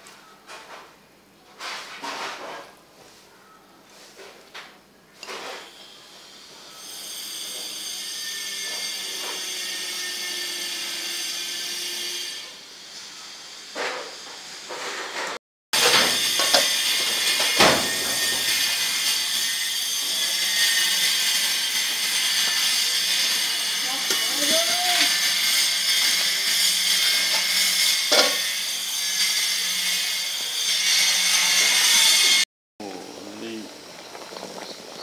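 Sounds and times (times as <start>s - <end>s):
metal spoon scraping steel bowl: 20.8s - 28.5s
steady hiss: 32.8s - 35.0s.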